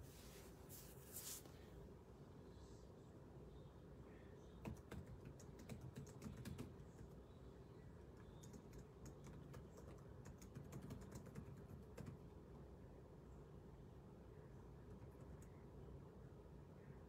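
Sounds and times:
faint keyboard typing: 0:04.5 - 0:07.4, 0:08.0 - 0:12.6, 0:14.8 - 0:15.7.

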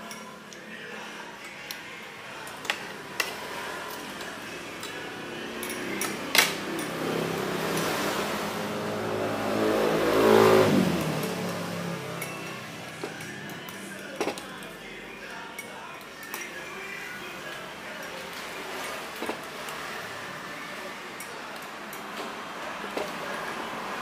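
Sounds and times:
vehicle driving past: 0:03.3 - 0:13.2.

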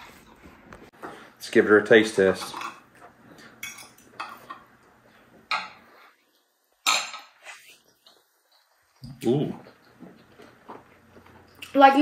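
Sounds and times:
forks clicking and scraping plates: 0:02.2 - 0:04.7.

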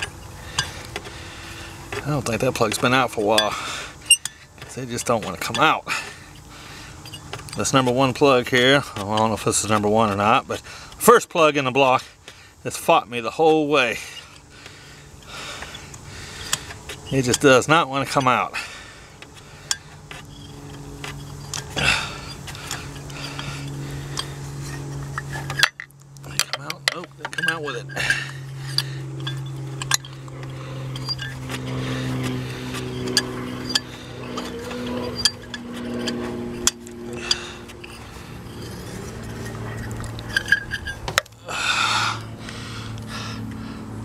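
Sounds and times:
steady low hum: 0:00.0 - 0:44.0
socket wrench metallic clinks: 0:02.6 - 0:05.7, 0:24.1 - 0:31.5, 0:32.9 - 0:41.4.

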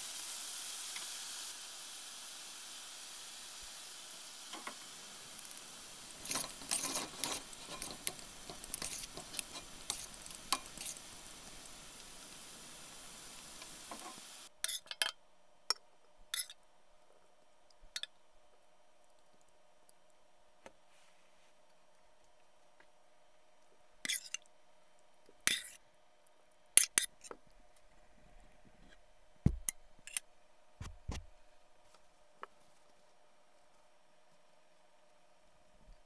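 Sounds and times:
food sizzling in a skillet: 0:00.0 - 0:14.8
utensil clinking and scraping pan: 0:06.1 - 0:11.1.

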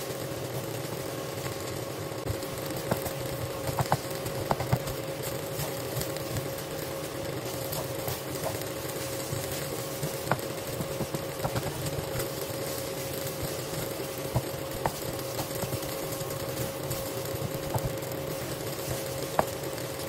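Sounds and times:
rice sizzling in a wok: 0:00.0 - 0:20.0
steady hum: 0:00.0 - 0:20.0
spatula stirring and scraping: 0:02.2 - 0:20.0
spatula tapping a pan: 0:02.8 - 0:05.0, 0:09.3 - 0:12.4, 0:13.4 - 0:19.7.

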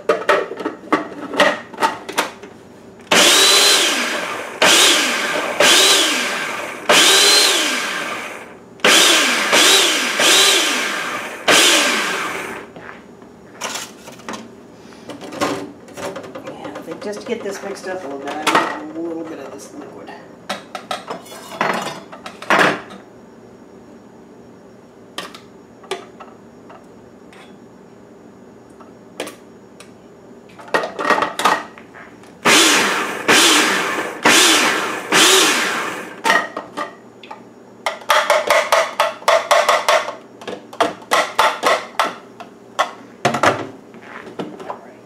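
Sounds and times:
food processor motor running: 0:03.1 - 0:12.7, 0:32.4 - 0:36.2.

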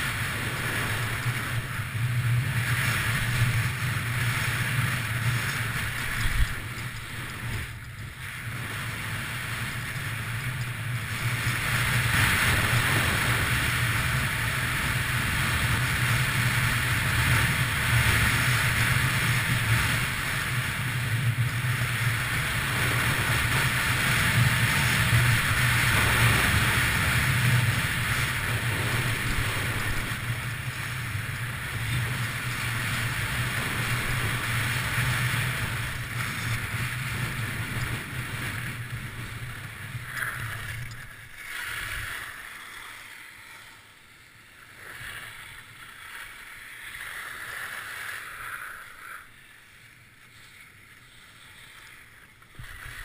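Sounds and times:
wind on microphone: 0:00.0 - 0:42.2
skis scraping on snow: 0:00.0 - 0:53.0.

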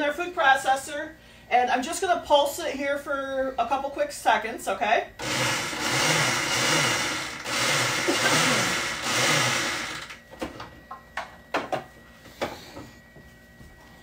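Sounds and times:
food processor motor pulsing: 0:05.2 - 0:10.2.

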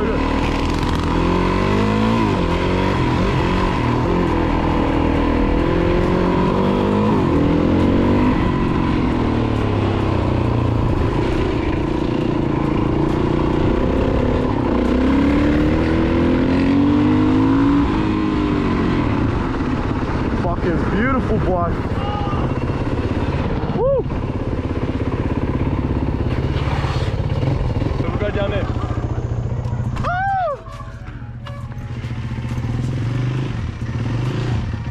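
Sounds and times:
dirt bike engine revving: 0:00.0 - 0:23.8, 0:31.9 - 0:34.9.

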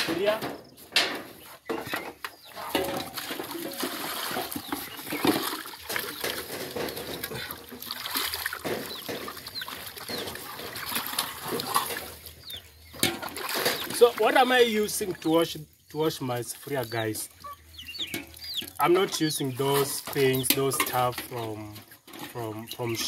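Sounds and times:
water sloshing in metal pot: 0:02.5 - 0:15.3, 0:18.1 - 0:23.0
bird chirps: 0:12.2 - 0:13.0, 0:15.6 - 0:21.6.

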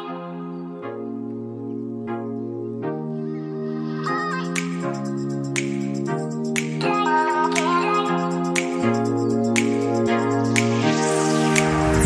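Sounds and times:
sustained chords: 0:09.4 - 0:12.0
sharp beat: 0:09.6 - 0:12.0.

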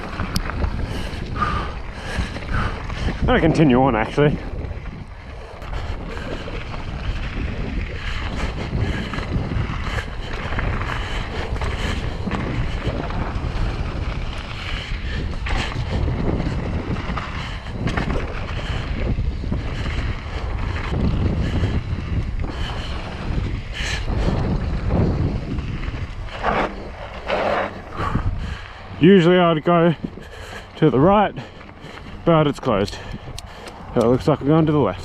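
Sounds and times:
bike knocks and rattles: 0:00.0 - 0:28.6
bike tyre rumble: 0:00.0 - 0:35.0
wind buffeting microphone: 0:00.0 - 0:35.0.

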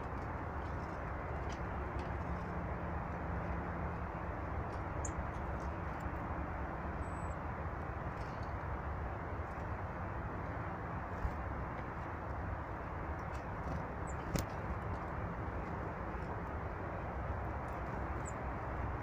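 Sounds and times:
low rushing outdoor noise: 0:00.0 - 0:19.0.

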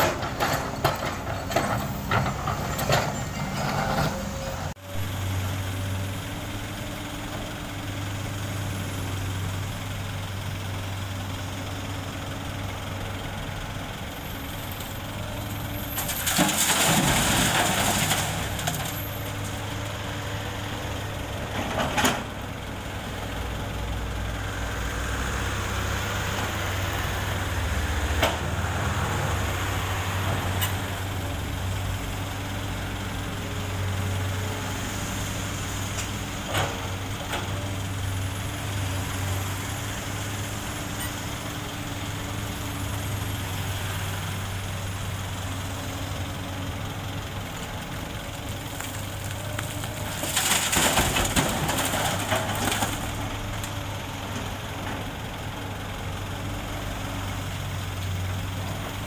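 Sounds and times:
excavator diesel engine running: 0:00.0 - 0:59.0.

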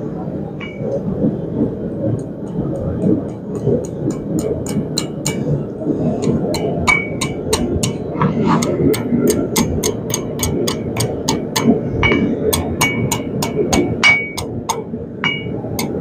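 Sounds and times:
low rumble: 0:00.0 - 0:16.0
hammer striking steel on anvil: 0:02.4 - 0:05.6, 0:06.2 - 0:16.0
anvil ringing: 0:06.3 - 0:08.1, 0:09.0 - 0:16.0.

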